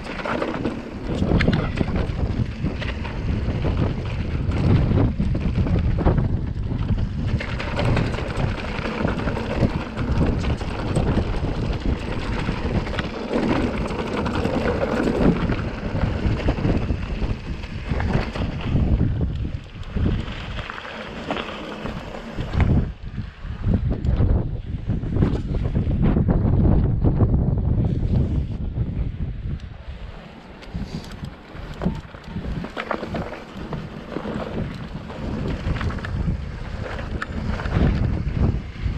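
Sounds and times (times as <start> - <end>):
bike knocking and rattling: 0.0 - 38.9
tyres on stony dirt trail: 0.0 - 38.9
wind buffeting microphone: 0.0 - 38.9.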